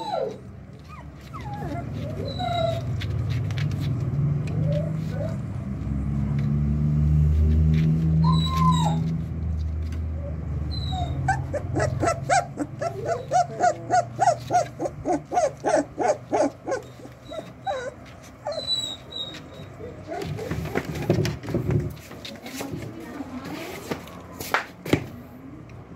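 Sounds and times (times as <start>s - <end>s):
puppies whimpering and yipping: 0.0s - 5.6s, 8.0s - 9.4s, 10.0s - 21.4s.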